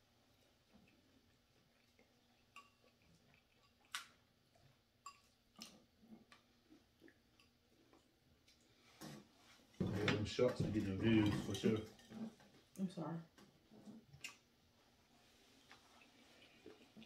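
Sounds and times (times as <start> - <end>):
chewing: 0.2 - 8.9, 13.4 - 14.5, 15.6 - 17.0.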